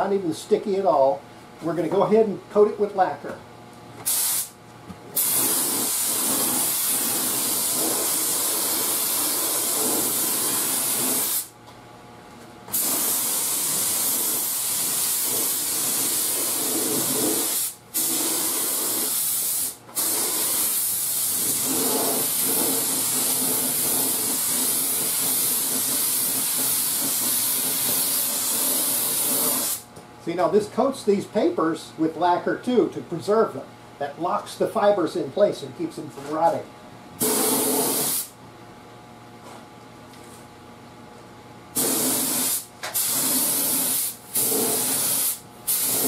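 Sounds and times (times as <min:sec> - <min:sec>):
spray gun hissing: 0:04.1 - 0:04.5, 0:12.7 - 0:29.8, 0:37.2 - 0:38.3, 0:41.8 - 0:46.0.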